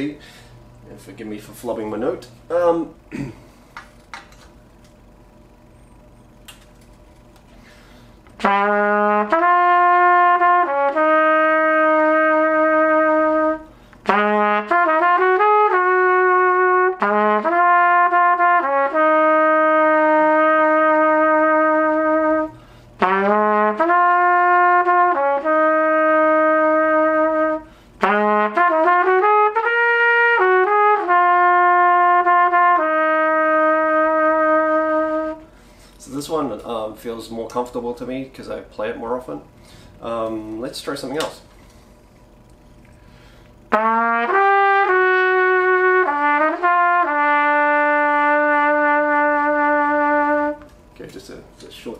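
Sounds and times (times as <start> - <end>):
player breathing: 0.2 - 0.7, 7.5 - 8.3, 39.6 - 40.0, 42.9 - 43.7
trumpet melody: 8.3 - 35.6, 43.7 - 50.7.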